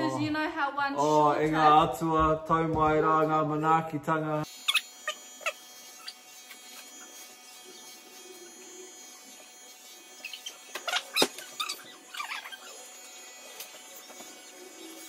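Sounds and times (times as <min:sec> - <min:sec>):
electric hair clippers buzzing: 0:04.4 - 0:15.0.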